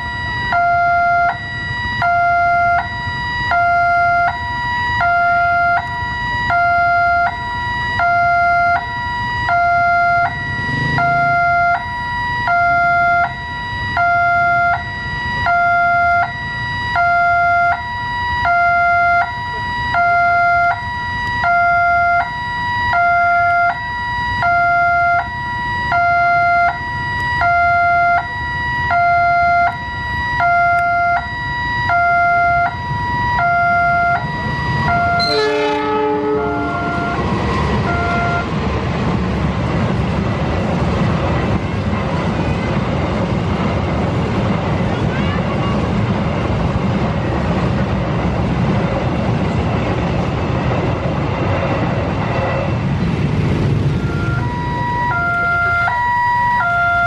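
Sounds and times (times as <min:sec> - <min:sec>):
two-tone level-crossing alarm: 0:00.0 - 0:38.5, 0:53.8 - 0:57.0.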